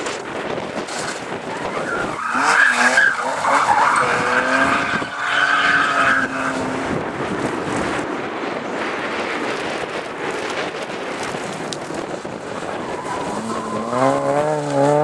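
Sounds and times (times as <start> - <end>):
gravel hissing under tyres: 0.0 - 15.0
rally car engine revving: 0.9 - 8.0, 12.9 - 15.0.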